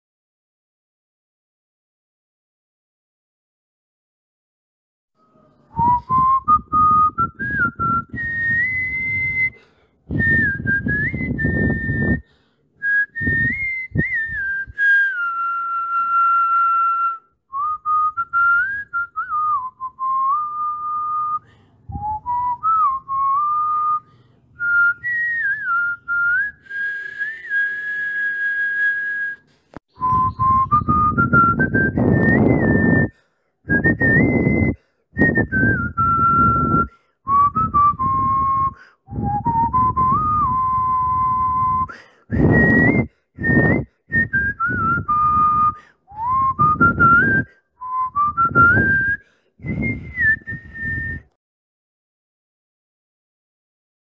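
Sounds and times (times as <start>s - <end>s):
whistled tune: 5.2s - 33.1s, 33.7s - 51.4s
rough low sound: 5.3s - 12.2s, 17.5s - 24.0s, 24.6s - 33.1s.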